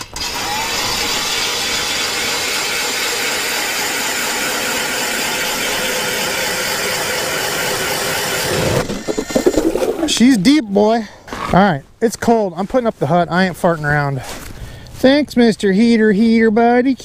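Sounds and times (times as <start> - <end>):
ice auger drilling: 0.0 - 10.2.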